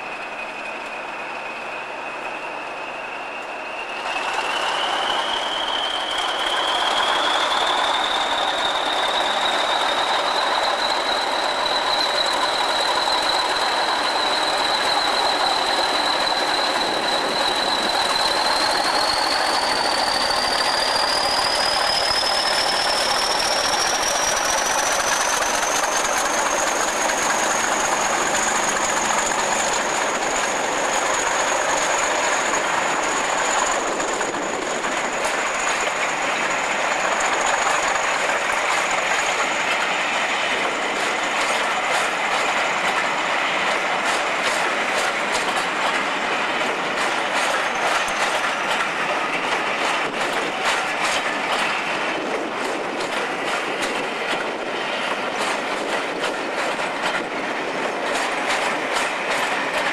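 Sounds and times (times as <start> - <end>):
high turbocharger whistle: 0.0 - 34.7
diesel locomotive engine under load: 0.0 - 59.9
train coaches rolling by: 0.0 - 59.9.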